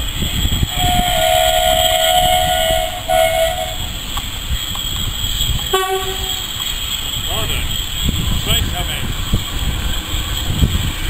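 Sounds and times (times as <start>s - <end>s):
lower-pitched whistle: 0.0s - 8.3s
train rumbling past: 0.0s - 11.0s
steam locomotive whistle: 0.6s - 4.0s, 5.7s - 6.5s.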